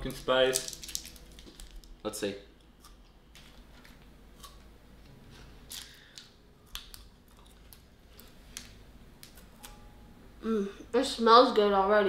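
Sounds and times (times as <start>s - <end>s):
plastic wrapper crinkling and tearing: 0.1s - 2.0s.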